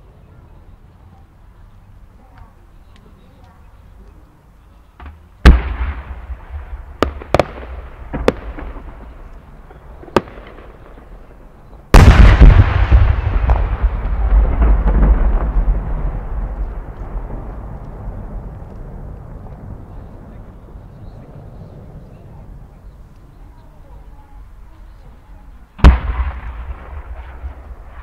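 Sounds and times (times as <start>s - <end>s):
firework boom echoing: 5.0s - 9.3s, 11.9s - 20.6s, 25.8s - 28.0s
firework mortar launch report: 5.0s - 22.9s, 25.7s - 28.0s
small firework pops: 7.0s - 11.1s, 16.4s - 19.8s.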